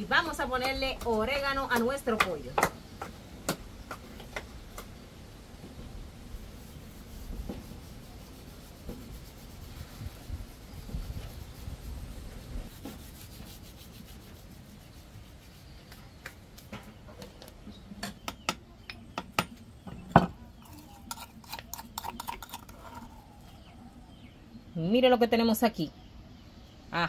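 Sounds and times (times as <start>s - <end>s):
hands rubbing raw chicken: 6.4s - 16.7s.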